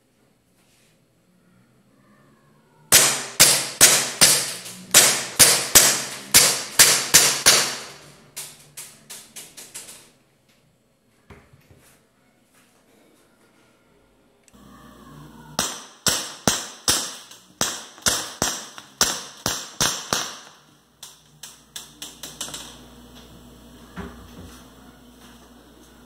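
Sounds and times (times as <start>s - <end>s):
airsoft pistol shots: 2.9s - 8.0s, 15.6s - 20.6s.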